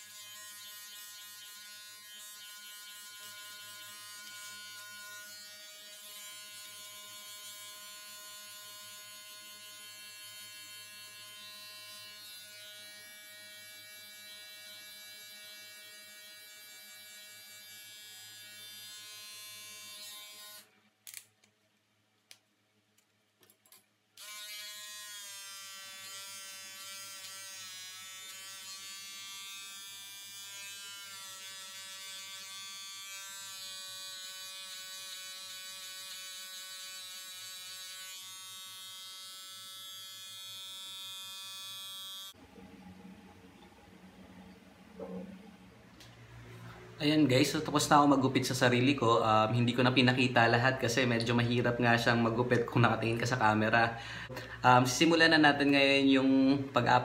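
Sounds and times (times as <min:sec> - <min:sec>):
electric hair clipper buzzing: 0:00.0 - 0:21.2, 0:24.2 - 0:42.4.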